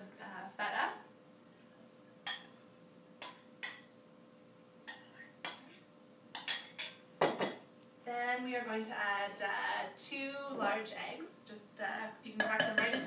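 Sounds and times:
ceramic bowls clinking: 4.9 - 7.6.

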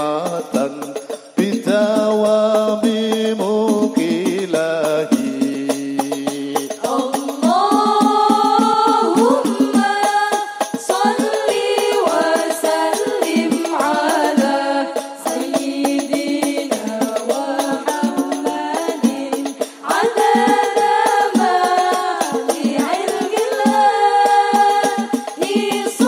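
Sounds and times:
frame drums beating: 0.0 - 26.0
women singing together: 6.8 - 26.0.

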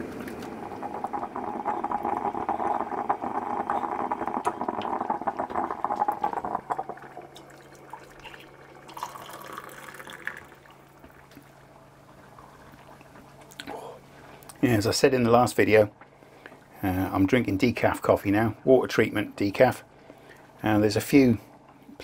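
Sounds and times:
coffee pouring into a mug: 0.0 - 11.5
liquid bubbling and spluttering: 0.0 - 13.6.

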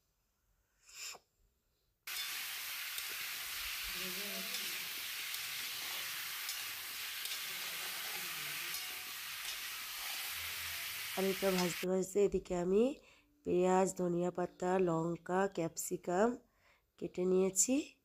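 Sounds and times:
spatula stirring: 2.1 - 11.8
potatoes sizzling in oil: 2.1 - 11.9.

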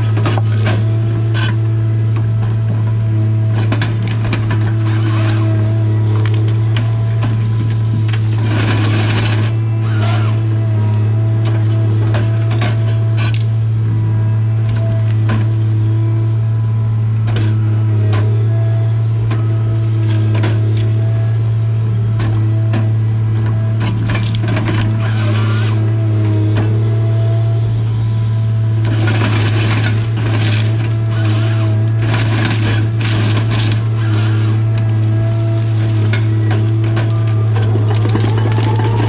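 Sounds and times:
harvester engine hum: 0.0 - 39.0
hydraulic whine: 0.0 - 39.0
wood cracking and splintering: 2.2 - 13.6, 23.8 - 25.8, 28.8 - 39.0.

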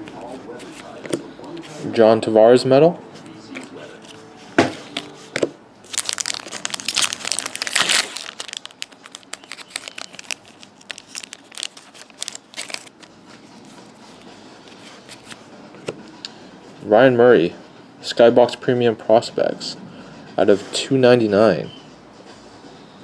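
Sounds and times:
cards crackling and clicking: 5.0 - 15.4
card pack wrapper tearing: 5.9 - 13.1.

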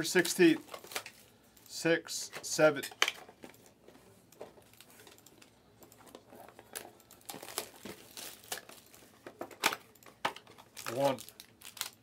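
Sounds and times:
plastic wrapping crinkling: 0.2 - 1.8, 4.4 - 12.0.

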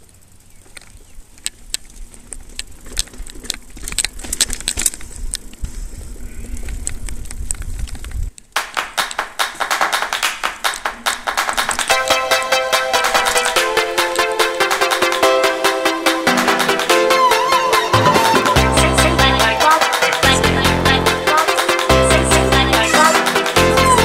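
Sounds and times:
wind and tyre rumble: 0.0 - 8.5
bike rattling clicks: 0.0 - 15.2
electronic music with steady beat: 8.6 - 24.0.

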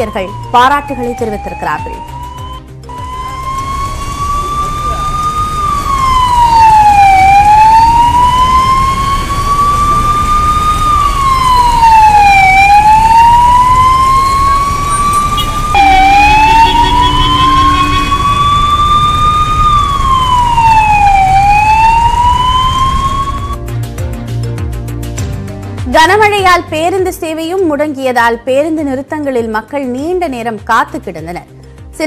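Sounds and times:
ambulance siren wailing: 0.0 - 23.6
low traffic rumble: 3.0 - 23.6.

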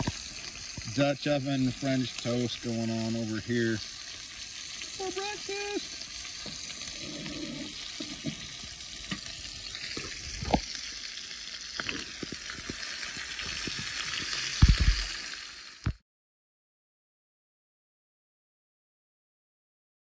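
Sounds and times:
pops and clicks: 0.0 - 0.9, 7.9 - 10.9, 11.7 - 16.0
bacon sizzling in a skillet: 0.0 - 16.0.

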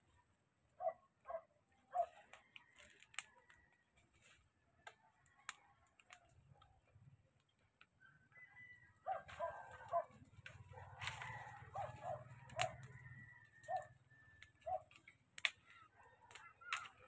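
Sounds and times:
fire crackling: 0.0 - 17.0
sharp pops from fire: 9.7 - 17.0.

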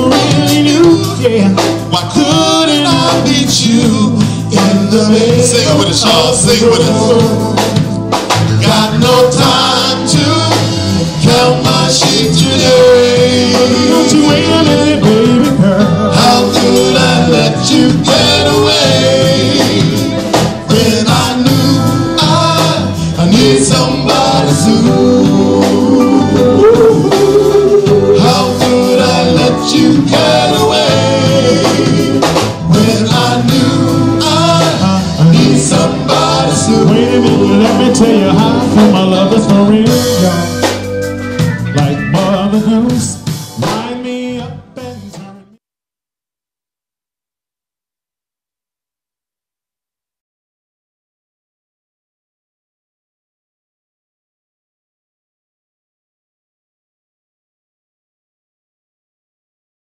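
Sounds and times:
male vocal group singing harmonies: 0.0 - 40.9, 41.8 - 45.6
band with drums and guitar: 0.0 - 45.6.

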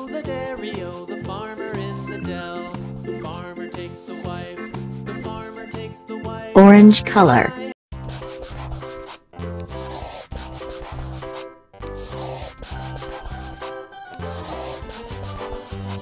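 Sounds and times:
instrumental children's music: 0.0 - 4.7
marker scratching on paper: 8.0 - 16.0.

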